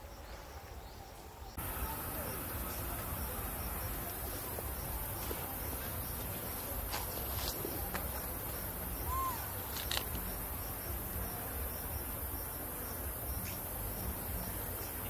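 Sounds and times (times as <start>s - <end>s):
insects buzzing: 0.0s - 15.0s
faint high chirps: 8.6s - 12.0s.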